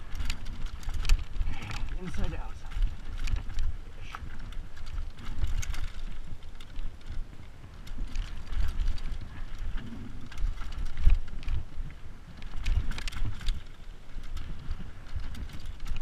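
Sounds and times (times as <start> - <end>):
wheels knocking on stones: 0.0 - 11.7
mountain bike rattling over rocks: 0.0 - 16.0
wind on microphone: 0.0 - 16.0.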